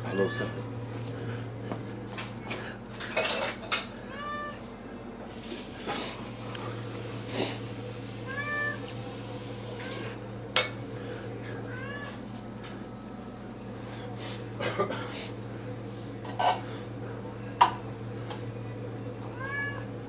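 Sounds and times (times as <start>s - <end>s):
steady low hum: 0.0s - 20.0s
cups and dishes clinking: 3.0s - 3.9s
cat meowing: 4.1s - 4.6s, 8.2s - 9.0s, 9.8s - 10.2s, 11.7s - 12.2s, 19.4s - 19.9s.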